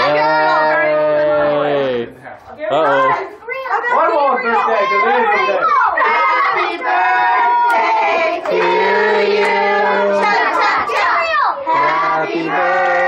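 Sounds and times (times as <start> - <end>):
children singing together: 6.0 - 13.0.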